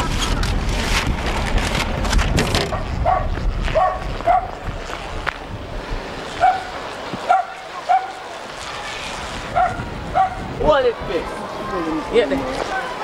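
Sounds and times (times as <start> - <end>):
dog barking: 2.7 - 4.5, 6.4 - 6.7, 7.3 - 8.2, 9.5 - 10.4.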